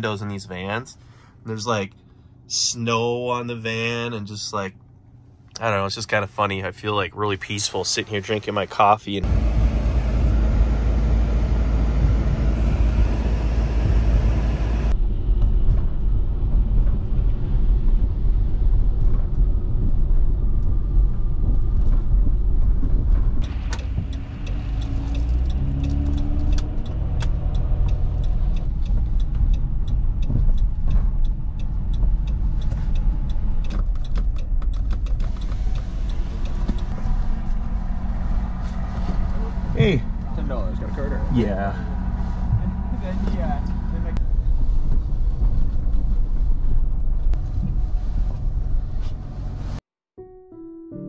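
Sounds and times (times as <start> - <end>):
van engine and road noise: 0.0 - 49.9
light clicks and ticks: 23.4 - 37.0.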